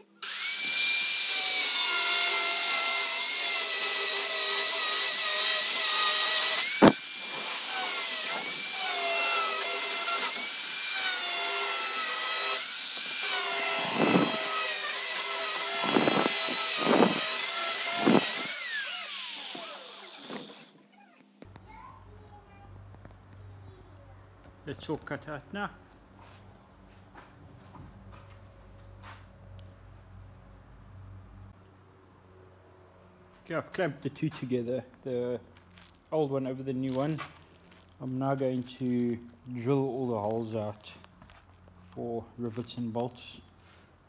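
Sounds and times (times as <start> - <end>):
angle grinder cutting plastic: 0.0 - 20.8.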